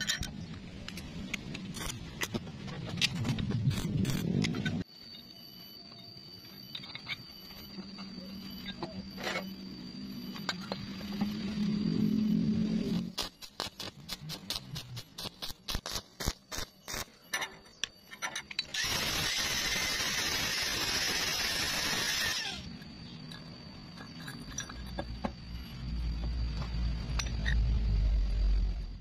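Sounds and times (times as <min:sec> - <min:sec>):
arc welding crackling: 0:12.9 - 0:17.2.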